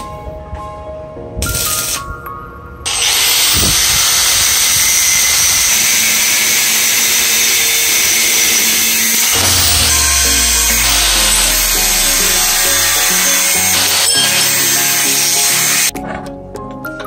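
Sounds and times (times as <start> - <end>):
electric power tool hissing: 2.9 - 15.9.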